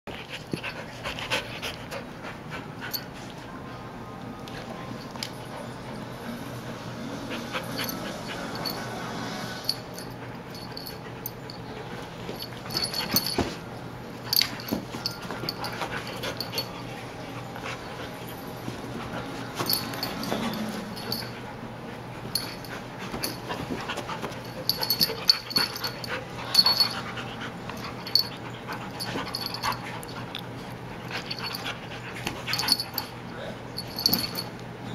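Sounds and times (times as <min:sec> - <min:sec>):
dogs scuffling: 0:14.2 - 0:34.6.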